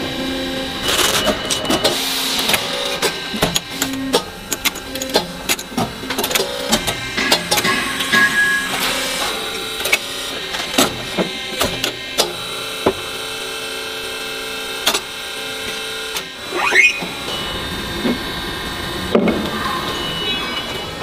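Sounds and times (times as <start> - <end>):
machine hum: 15.4 - 21.0
short rising squeal: 16.4 - 17.7.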